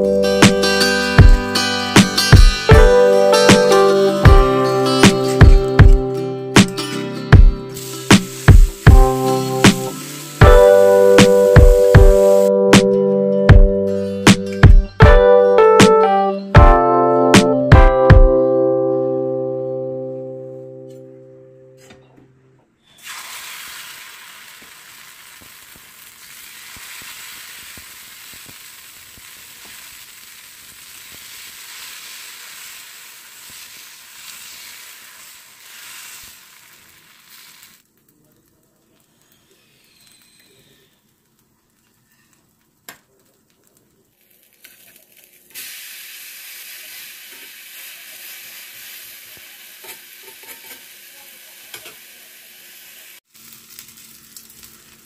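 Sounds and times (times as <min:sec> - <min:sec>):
batter sizzling on hot pan: 0:07.7 - 0:12.5, 0:22.9 - 0:55.0.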